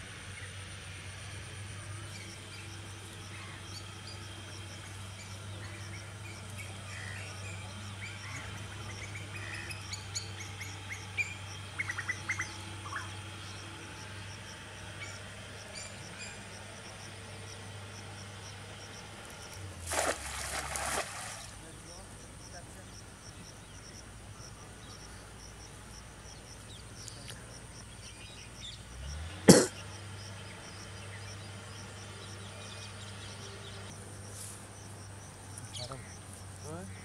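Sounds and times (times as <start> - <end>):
small birds chirping: 21.2 - 29.1, 29.8 - 37.0.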